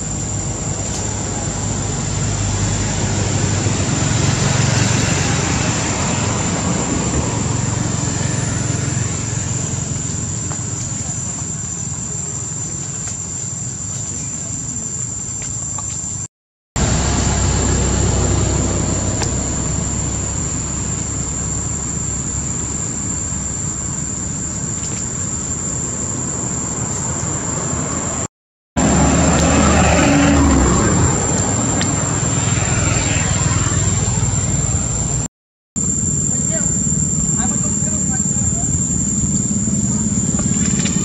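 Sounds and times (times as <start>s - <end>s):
constant high whine: 0.0s - 41.0s
low rumble: 16.8s - 24.4s.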